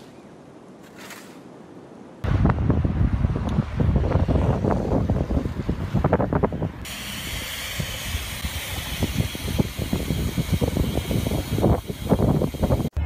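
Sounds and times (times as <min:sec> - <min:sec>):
wind buffeting microphone: 0:02.2 - 0:13.0
steady hiss: 0:06.8 - 0:12.9.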